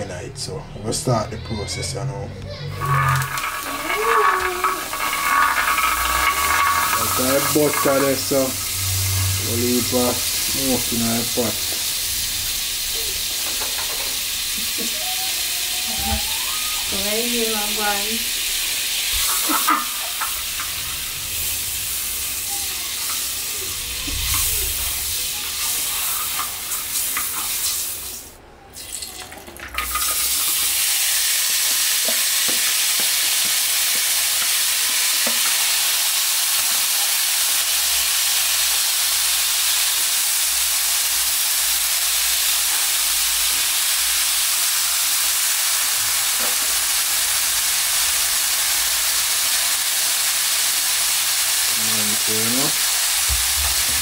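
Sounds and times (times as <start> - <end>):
butter sizzling in frying pan: 2.5 - 28.3, 29.7 - 54.0
vegetables frying: 2.5 - 54.0
spatula scraping pan: 2.7 - 10.6.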